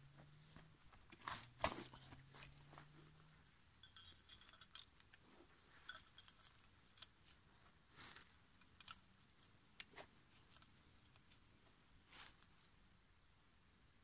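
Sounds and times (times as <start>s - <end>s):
dry soil sprinkled on metal trap: 1.1s - 9.1s.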